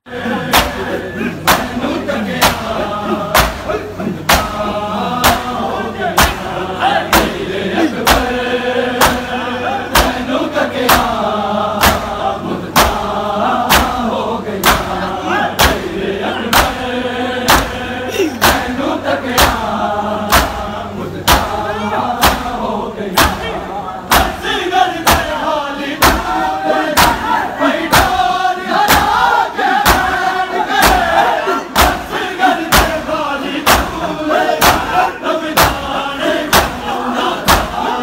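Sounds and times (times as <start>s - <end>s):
men chanting: 0.0s - 38.0s
hands striking bare chests: 3.3s - 3.7s, 11.8s - 12.1s, 20.3s - 20.6s.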